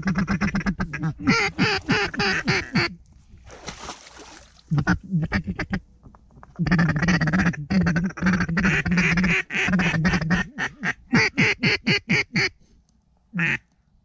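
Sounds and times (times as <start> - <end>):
duck call quacks: 0.0 - 3.0, 6.6 - 12.6, 13.4 - 13.6.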